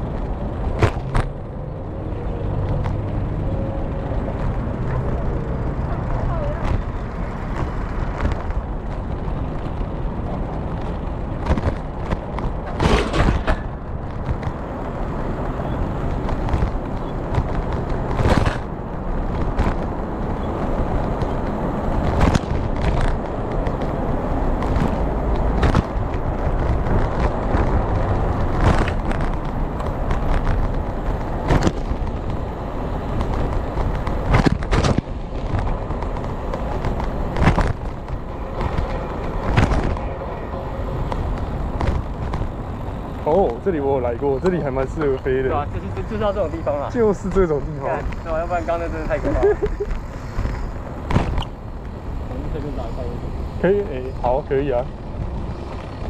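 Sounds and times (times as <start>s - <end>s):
bicycle knocks and rattles: 0.0s - 1.6s, 4.0s - 40.2s, 40.9s - 47.4s, 48.1s - 52.0s
bicycle wheels rumbling on pavement: 0.0s - 56.0s.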